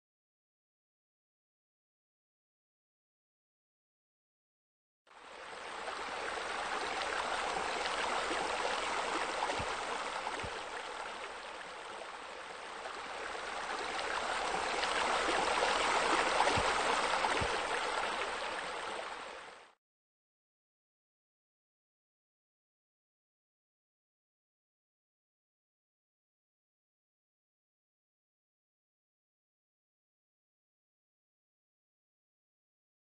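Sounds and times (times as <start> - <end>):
water splashing: 6.1 - 11.4, 12.9 - 19.2.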